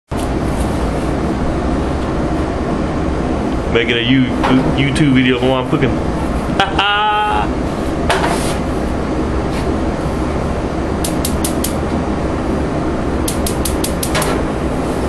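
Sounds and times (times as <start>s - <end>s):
spark igniter clicking: 11.0s - 11.8s, 13.2s - 14.3s.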